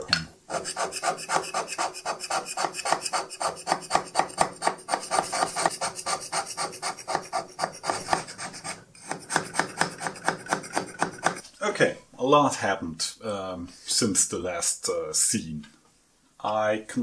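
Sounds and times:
hand scraper rasping on metal: 0.5 - 11.4.

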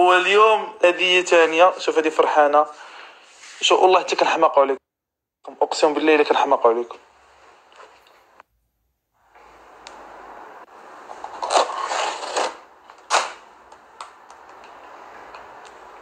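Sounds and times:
foil tray scraping and crinkling: 11.2 - 12.6.

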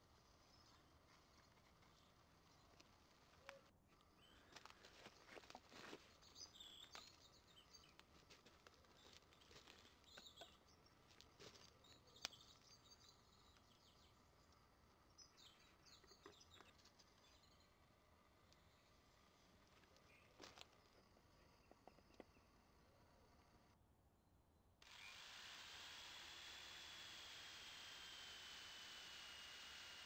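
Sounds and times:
small birds chirping: 0.1 - 23.4.

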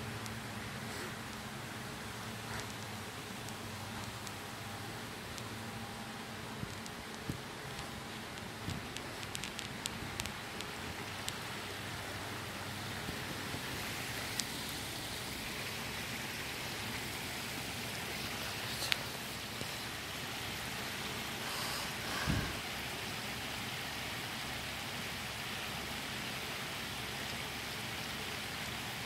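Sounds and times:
water rushing over weir: 0.0 - 29.0.

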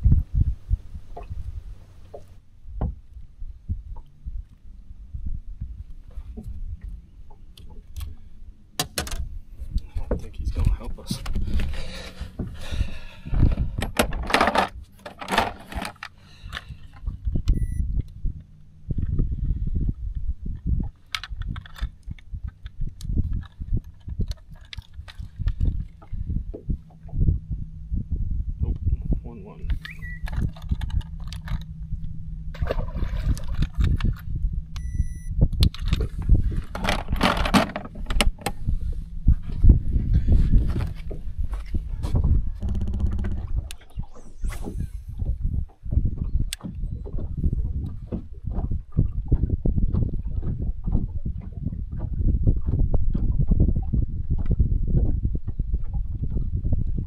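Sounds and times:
low steady rumble: 0.0 - 57.0
clicking and clinking of fish tools: 13.3 - 17.6, 20.9 - 26.2, 29.6 - 32.1
short electronic beep: 17.5 - 17.9, 29.8 - 30.3, 34.8 - 35.4
fishing gear clinking and knocking: 20.9 - 26.2, 29.6 - 32.7, 33.3 - 35.0, 35.6 - 38.6.

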